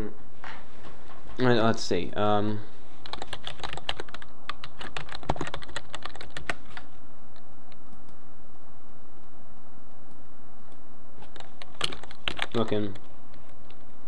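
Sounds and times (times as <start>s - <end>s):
fast typing on a keyboard: 3.0s - 6.9s, 11.2s - 13.8s.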